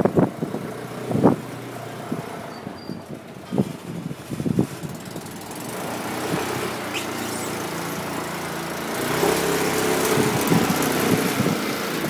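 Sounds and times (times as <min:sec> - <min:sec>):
quad bike engine idling: 0:03.2 - 0:12.0.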